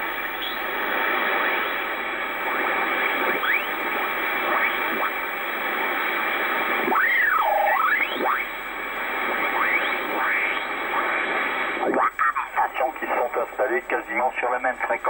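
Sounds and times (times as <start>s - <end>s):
radio band noise hiss: 0.0s - 15.0s
radio whistles rising and falling: 2.4s - 5.3s, 6.7s - 11.4s.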